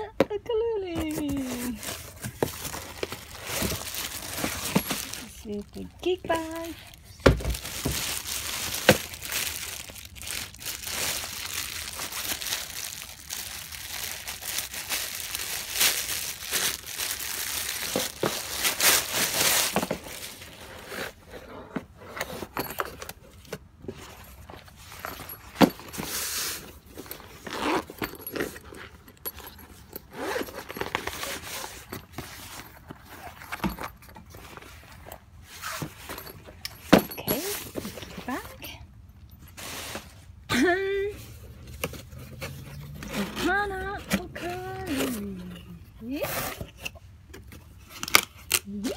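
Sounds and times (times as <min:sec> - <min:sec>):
handling clicks and knocks: 0:00.1 - 0:09.2, 0:32.8 - 0:38.4
plastic wrapping crinkling: 0:01.0 - 0:20.9.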